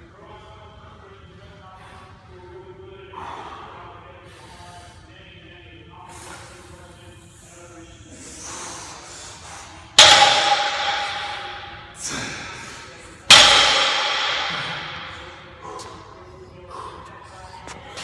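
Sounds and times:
barbell clanging on floor: 10.0s - 11.9s.

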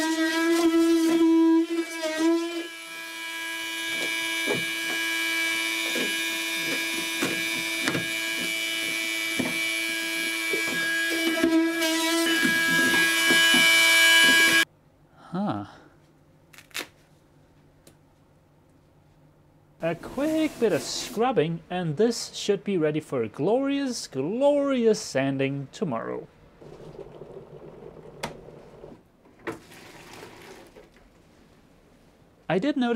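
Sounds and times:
electric power tool buzzing: 0.0s - 14.6s.

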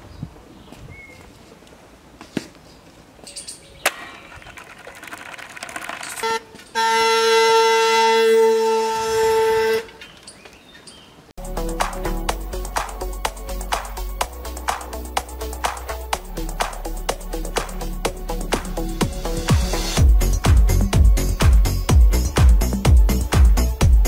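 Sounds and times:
faint outdoor noise: 0.0s - 24.0s
horn blast: 6.2s - 9.9s.

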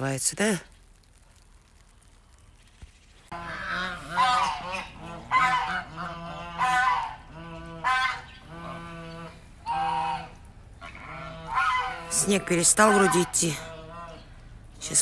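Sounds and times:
geese honking: 3.3s - 14.5s.

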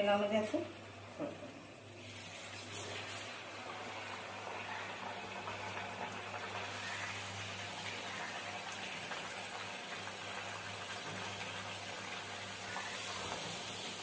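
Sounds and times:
oil bubbling and sizzling: 0.8s - 14.0s.

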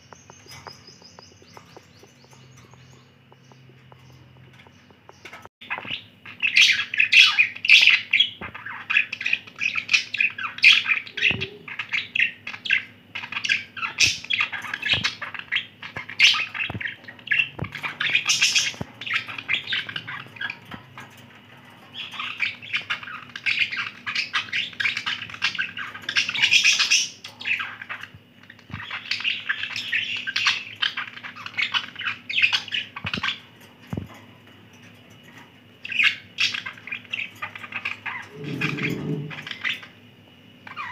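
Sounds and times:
budgerigars warbling and chirping: 0.0s - 40.9s.

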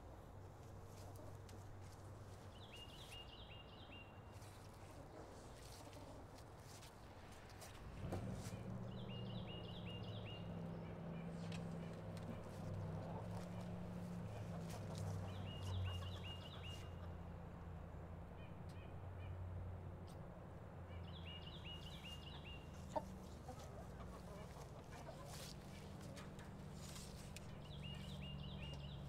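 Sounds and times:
birds chirping: 7.7s - 19.4s, 20.9s - 29.0s.

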